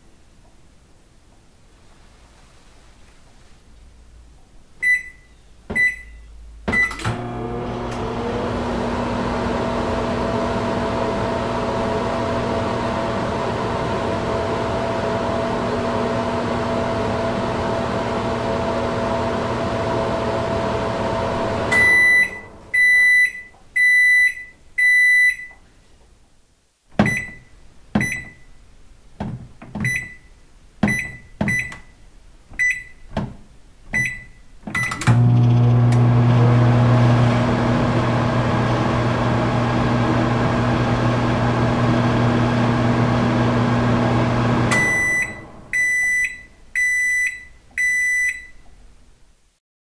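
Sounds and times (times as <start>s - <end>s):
microwave beeps: 4.8s - 8.3s, 21.7s - 25.6s, 27.0s - 28.5s, 29.8s - 32.0s, 32.6s - 33.1s, 34.0s - 37.2s, 44.6s - 48.6s
microwave oven humming: 6.8s - 23.2s, 34.9s - 46.5s
keypad clicks with beeps: 30.9s - 31.9s, 32.6s - 33.1s, 33.9s - 35.0s.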